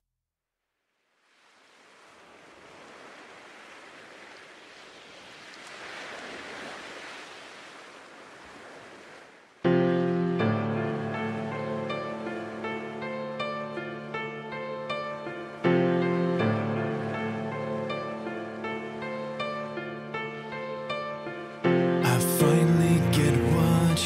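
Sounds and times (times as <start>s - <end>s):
ocean waves surf: 1.1s - 24.0s
music with sustained chords: 9.7s - 24.0s.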